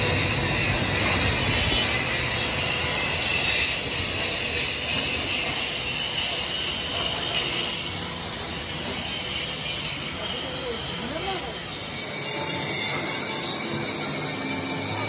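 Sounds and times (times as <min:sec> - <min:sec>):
lathe hiss and rumble: 0:00.0 - 0:15.0.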